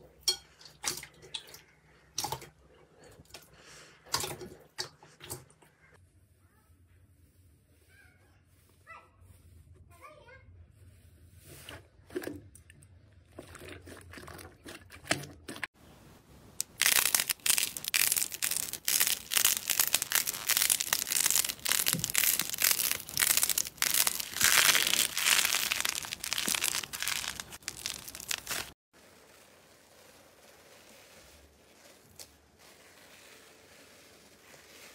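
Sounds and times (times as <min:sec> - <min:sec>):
slime crackling and popping: 0:16.6 - 0:28.8
slime squeezed by hand: 0:16.6 - 0:28.8.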